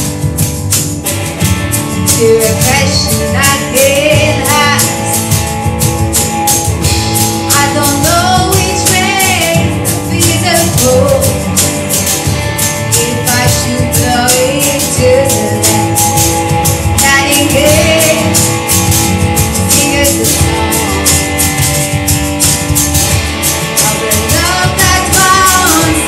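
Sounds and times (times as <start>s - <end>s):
drum kit with cymbals: 0.0s - 26.0s
electric guitar: 0.0s - 26.0s
woman singing with vibrato: 2.2s - 5.3s, 7.5s - 11.6s, 12.9s - 16.2s, 17.0s - 18.6s, 19.6s - 21.5s, 23.8s - 26.0s.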